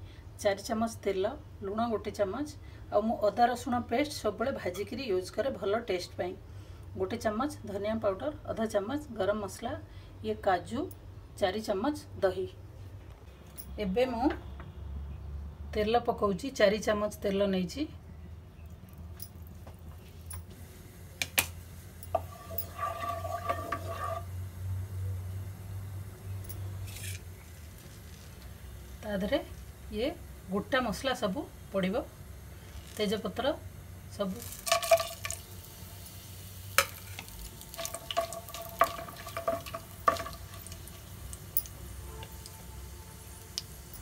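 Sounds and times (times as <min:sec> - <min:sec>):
low steady hum: 0:00.0 - 0:44.0
spices sizzling in oil: 0:19.4 - 0:44.0
metal cookware clinking: 0:22.1 - 0:24.3, 0:36.8 - 0:40.8
metal spoon scraping in pan: 0:22.1 - 0:24.4, 0:26.8 - 0:27.4, 0:36.8 - 0:42.6.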